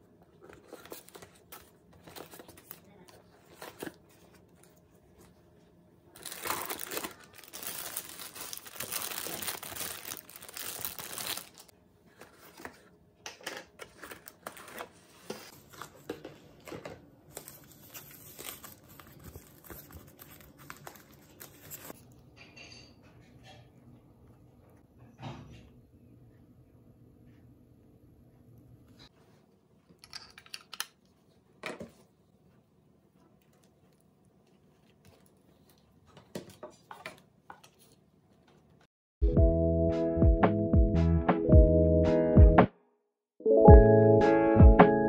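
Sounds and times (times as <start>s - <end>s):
foam wrap rustling: 6.1s - 11.7s, 17.3s - 22.0s
packaging crinkling: 6.1s - 11.7s, 17.3s - 22.0s.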